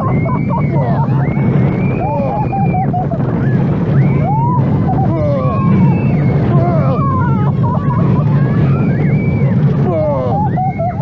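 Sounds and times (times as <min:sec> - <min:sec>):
high squealing of wheels: 0:00.0 - 0:11.0
roller coaster rumbling: 0:00.0 - 0:11.0.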